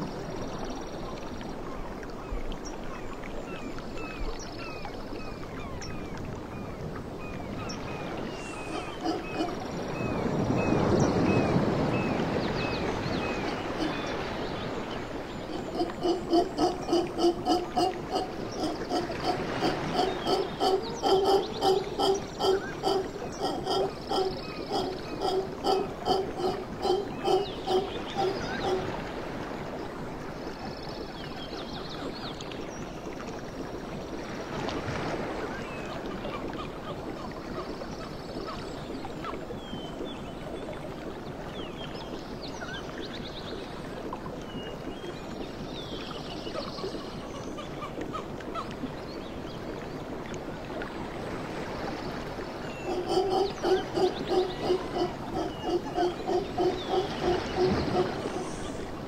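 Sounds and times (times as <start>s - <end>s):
howler monkeys grunting: 8.4s - 10.1s, 15.4s - 28.9s, 52.7s - 58.9s.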